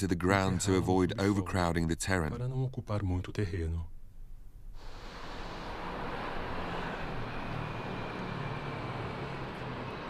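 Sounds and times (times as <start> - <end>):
city traffic rumble: 4.8 - 10.0
low engine drone: 4.8 - 10.0.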